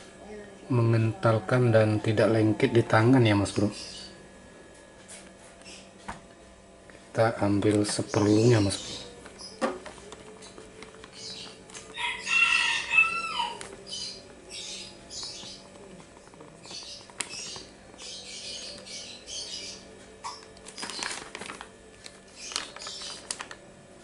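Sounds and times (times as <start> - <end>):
plastic bag crinkling: 20.2 - 23.7.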